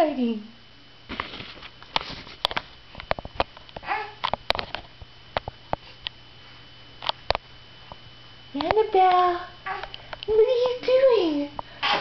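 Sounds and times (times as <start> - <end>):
baby high-pitched vocal sound: 3.8 - 4.2.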